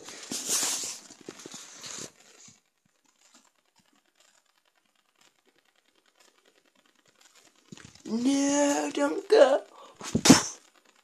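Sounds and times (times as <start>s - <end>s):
rustling handling noise: 0.0s - 4.4s.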